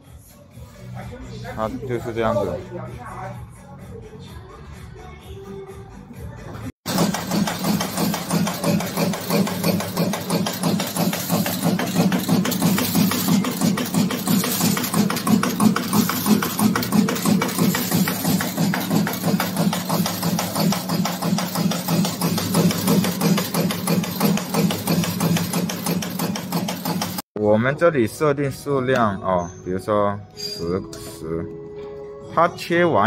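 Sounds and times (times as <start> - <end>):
punch cutter die strokes: 6.9 - 27.2.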